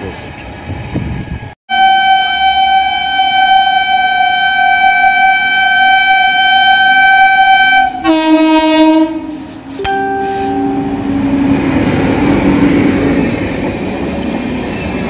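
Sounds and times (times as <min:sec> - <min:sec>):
train rumble: 0:00.0 - 0:15.0
electric locomotive horn blast: 0:01.7 - 0:12.2.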